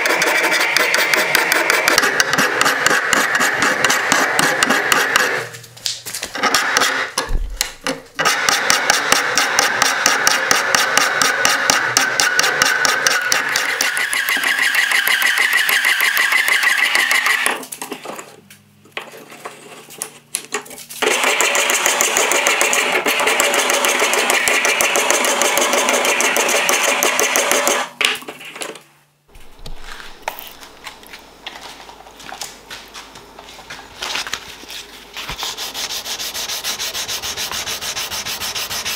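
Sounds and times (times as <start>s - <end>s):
file rasping on steel: 0.0s - 5.5s, 8.2s - 17.5s, 35.5s - 38.9s.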